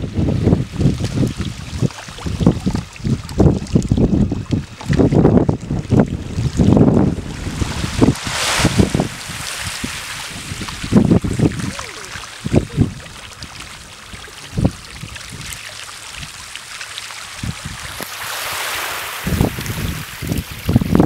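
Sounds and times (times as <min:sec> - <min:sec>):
wind buffeting microphone: 0:00.0 - 0:16.5, 0:17.3 - 0:21.0
small waves washing on gravel beach: 0:06.2 - 0:20.9.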